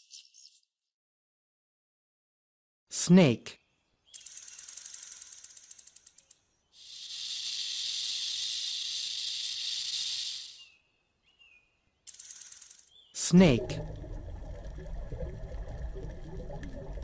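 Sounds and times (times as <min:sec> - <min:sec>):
snake rattling buzz: 0:04.1 - 0:10.7, 0:12.1 - 0:13.0
snake hissing: 0:06.8 - 0:10.8.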